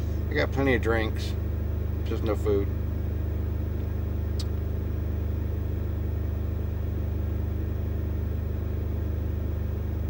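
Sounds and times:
diesel engine idling: 0:00.0 - 0:06.6
light click: 0:04.4 - 0:04.6.

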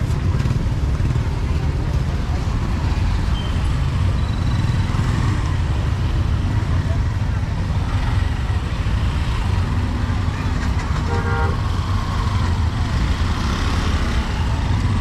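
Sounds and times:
street traffic rumble: 0:00.0 - 0:15.0
vehicle horn toot: 0:11.1 - 0:11.6.

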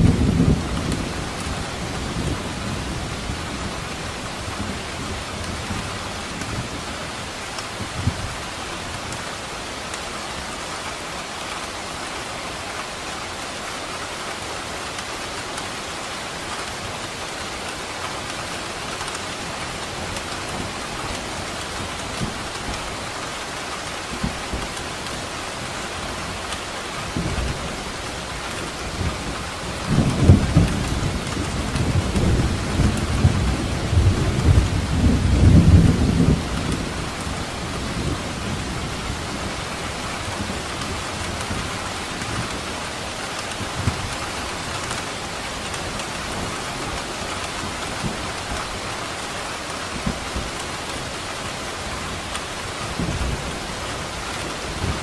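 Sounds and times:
thunder rolling: 0:00.0 - 0:03.4
steady rain falling: 0:00.0 - 0:55.0.

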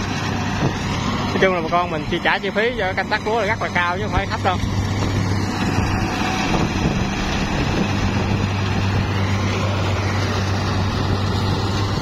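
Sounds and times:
machinery engine running: 0:00.0 - 0:12.0
wind noise on microphone: 0:04.6 - 0:09.6, 0:10.4 - 0:12.0.

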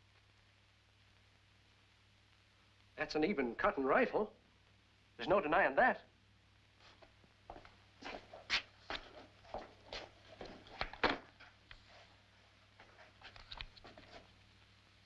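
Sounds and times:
people moving in wooden room: 0:06.7 - 0:14.6.

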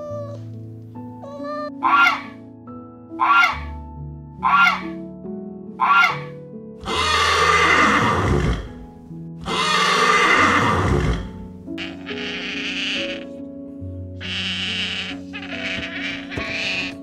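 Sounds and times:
background music: 0:00.0 - 0:17.0
goose honking: 0:03.2 - 0:03.7, 0:04.4 - 0:04.9, 0:11.8 - 0:13.3, 0:14.2 - 0:17.0
horse whinnying: 0:03.2 - 0:03.7, 0:05.8 - 0:08.8, 0:09.4 - 0:13.3, 0:14.2 - 0:17.0.

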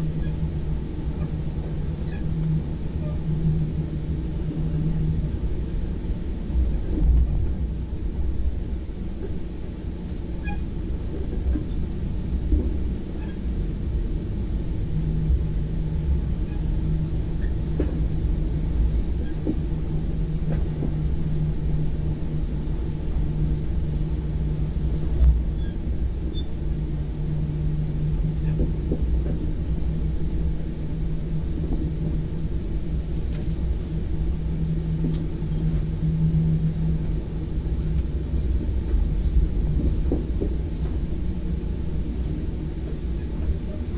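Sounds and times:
steady low hum: 0:00.0 - 0:43.9
train interior rumble: 0:00.0 - 0:43.9.

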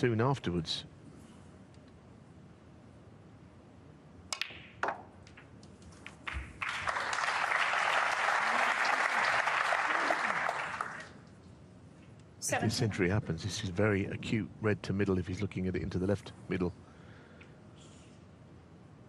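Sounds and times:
snooker balls clicking: 0:04.3 - 0:06.5
audience applauding: 0:06.2 - 0:11.2.

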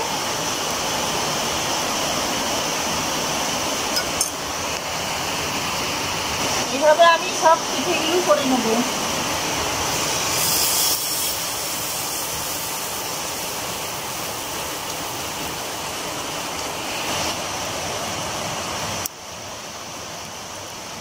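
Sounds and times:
batter sizzling on griddle: 0:09.7 - 0:15.9, 0:16.7 - 0:17.4.

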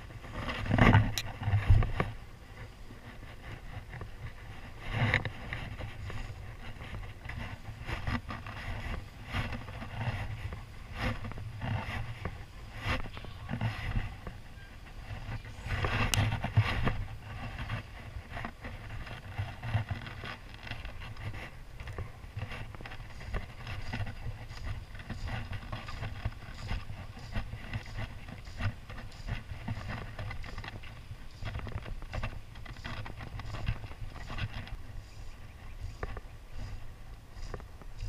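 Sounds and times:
clicks and rustles of fishing gear: 0:00.0 - 0:38.0
wind rumbling on microphone: 0:00.0 - 0:38.0.

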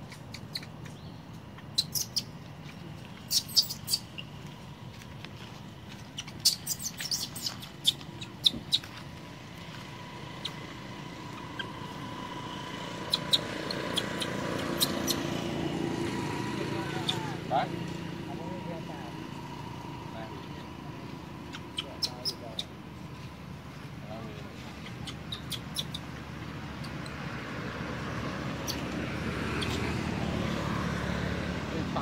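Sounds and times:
high-pitched animal chirps: 0:01.6 - 0:02.4, 0:03.2 - 0:04.3, 0:06.2 - 0:09.0, 0:11.3 - 0:12.0, 0:13.0 - 0:15.3, 0:16.8 - 0:17.4, 0:21.4 - 0:22.8, 0:24.8 - 0:26.1.

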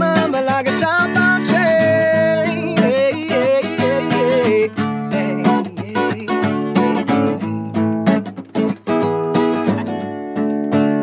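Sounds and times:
person singing: 0:00.0 - 0:08.1
acoustic guitar strumming: 0:00.0 - 0:11.0.

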